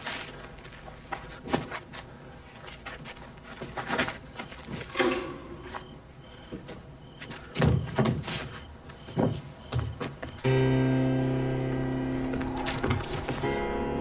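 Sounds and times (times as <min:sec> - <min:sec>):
footsteps and light knocks: 0:00.0 - 0:10.5, 0:12.3 - 0:13.6
faint high chirping: 0:04.9 - 0:10.5.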